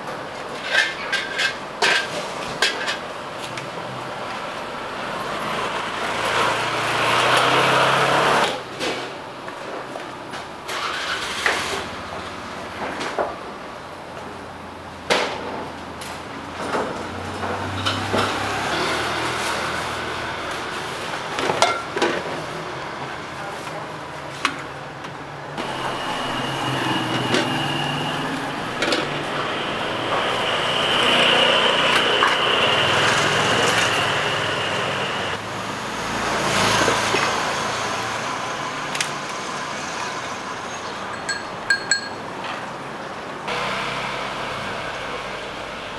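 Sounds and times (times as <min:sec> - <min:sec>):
street traffic passing: 0:00.0 - 0:45.9.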